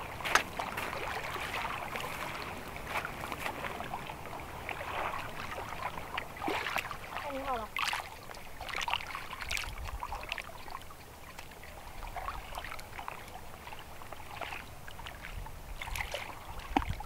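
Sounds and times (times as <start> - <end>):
low steady hiss: 0.0 - 17.0
water lapping and trickling: 0.0 - 17.0
small splashy ticks: 7.8 - 17.0.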